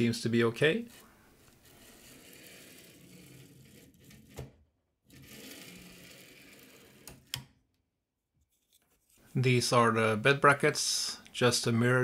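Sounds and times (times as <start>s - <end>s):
bearings rolling along rods: 1.6s - 4.3s, 5.1s - 7.1s.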